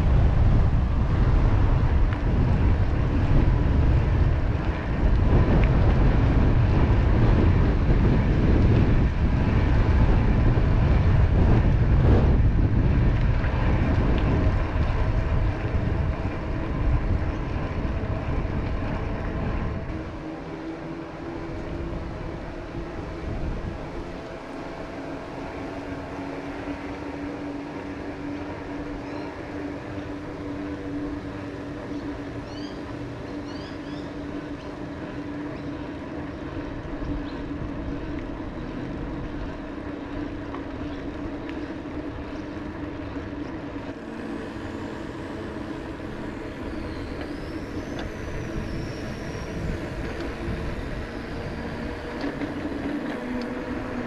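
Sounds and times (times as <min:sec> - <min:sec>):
bike tyres rolling: 0:00.0 - 0:54.0
low mechanical hum: 0:00.0 - 0:54.0
high gliding call: 0:31.2 - 0:34.7.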